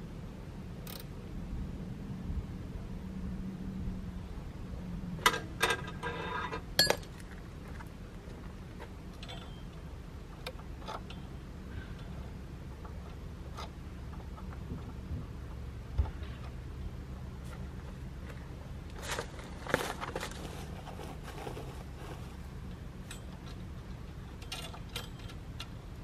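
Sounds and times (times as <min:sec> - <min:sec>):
steady low hum: 0:00.0 - 0:26.0
metal clinks and rattle: 0:24.3 - 0:25.7.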